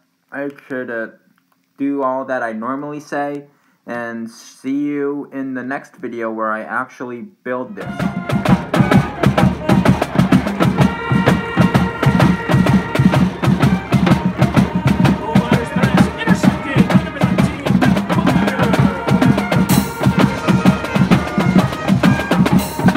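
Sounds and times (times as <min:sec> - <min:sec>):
marching band playing: 0:07.7 - 0:22.9.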